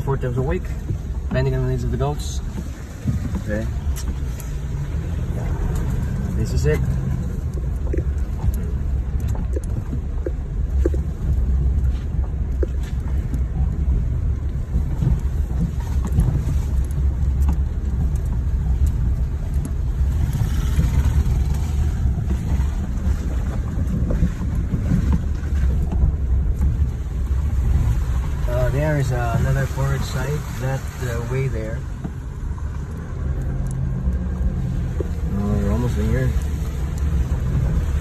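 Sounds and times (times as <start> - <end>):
knocks and rattles from bumps: 0.0 - 30.2
truck engine and road rumble: 0.0 - 38.0.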